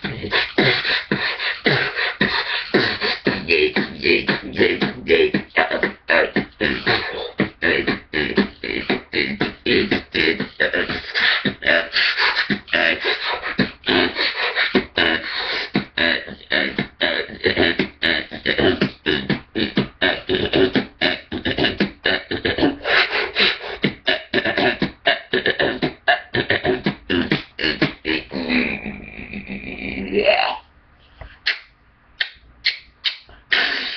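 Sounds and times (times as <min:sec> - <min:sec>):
beatboxing bass stutters: 0:00.0 - 0:30.6, 0:31.2 - 0:33.9
mouth clicks: 0:31.2 - 0:33.9.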